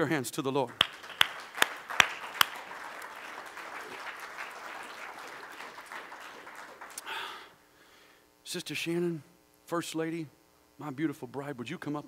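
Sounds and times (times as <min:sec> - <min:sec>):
congregation applauding: 0:00.6 - 0:07.5
sharp close claps: 0:00.7 - 0:07.1.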